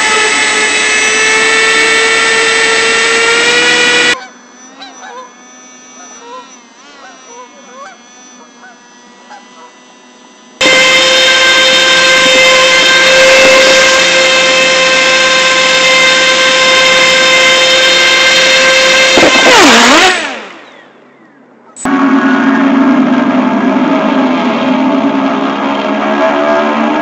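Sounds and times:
airboat motor high whine: 0.0s - 27.0s.

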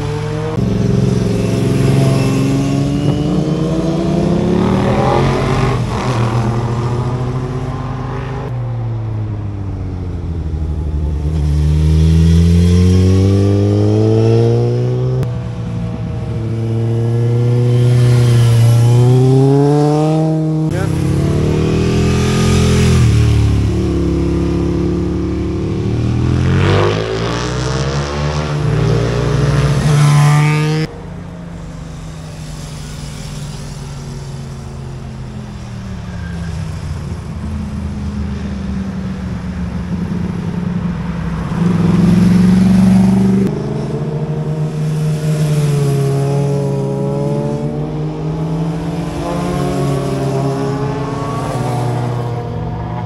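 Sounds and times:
motorcycles passing revving: 0.0s - 53.0s.

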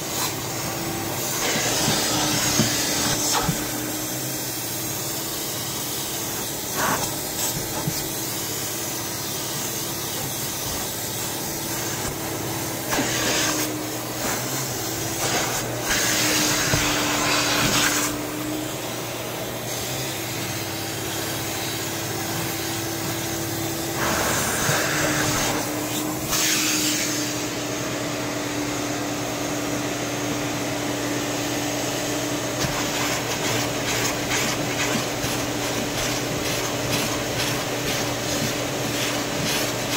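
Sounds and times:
vacuum motor humming: 0.0s - 39.9s
wand spraying and sucking water: 32.6s - 39.9s.

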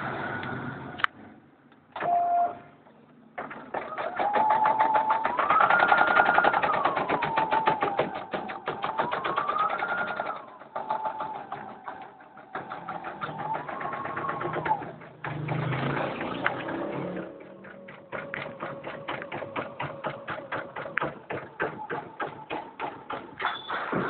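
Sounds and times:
embroidery machine stitching: 3.8s - 21.5s.

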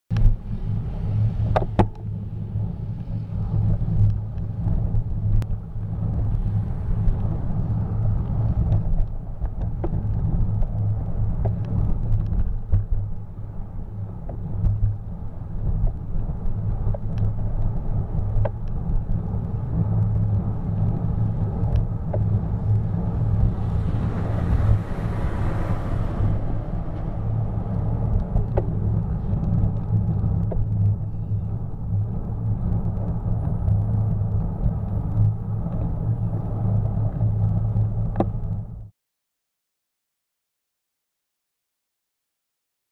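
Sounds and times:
wind and road noise: 0.1s - 38.9s
garbage truck passing: 23.3s - 27.8s.

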